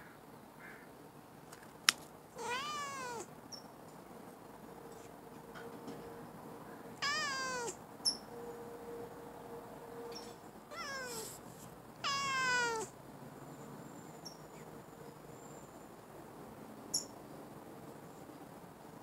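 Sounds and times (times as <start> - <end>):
cat meowing: 2.4 - 3.3, 7.0 - 7.8, 10.7 - 11.4, 12.0 - 12.9.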